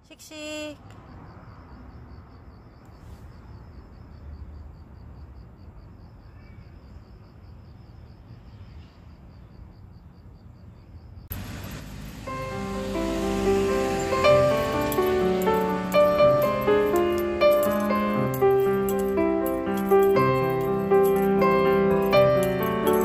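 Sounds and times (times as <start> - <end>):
insect chirping: 0.0 - 23.0
music: 12.3 - 23.0.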